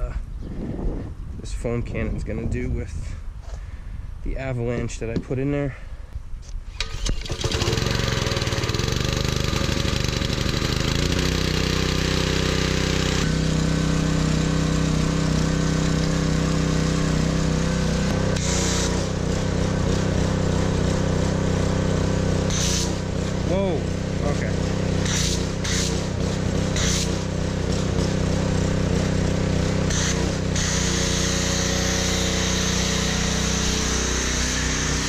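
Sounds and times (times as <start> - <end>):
petrol engine pull-started and running: 6.7 - 35.0
spray hissing: 18.3 - 19.3, 22.4 - 23.2, 25.0 - 27.3, 29.9 - 35.0.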